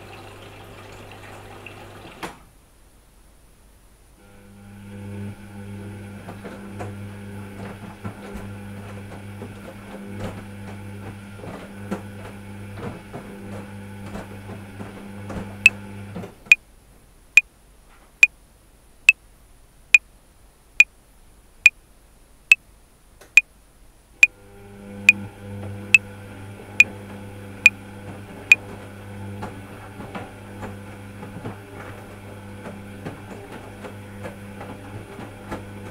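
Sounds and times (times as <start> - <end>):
washing machine motor humming: 0.0 - 2.2, 4.2 - 16.3, 24.2 - 35.9.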